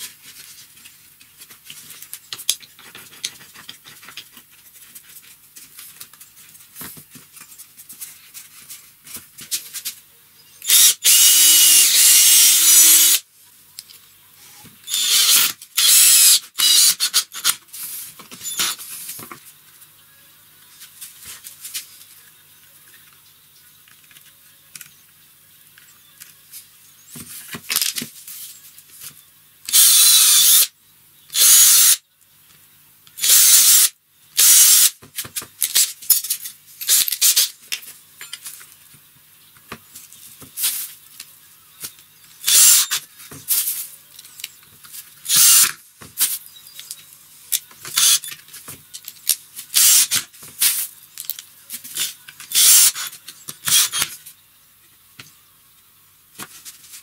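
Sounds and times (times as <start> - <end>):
drill boring into wood: 10.6 - 13.2, 14.9 - 17.5, 29.7 - 30.7, 31.3 - 32.0, 33.2 - 34.9, 42.4 - 43.0, 45.3 - 45.7, 48.0 - 48.3, 49.8 - 50.2, 52.5 - 54.1
drill driving screws: 10.6 - 13.2, 14.9 - 17.6, 18.4 - 18.8, 29.7 - 30.7, 31.3 - 32.0, 33.2 - 35.0, 36.9 - 37.5, 42.4 - 43.0, 45.3 - 45.8, 47.9 - 48.3, 49.7 - 50.2, 52.5 - 54.1.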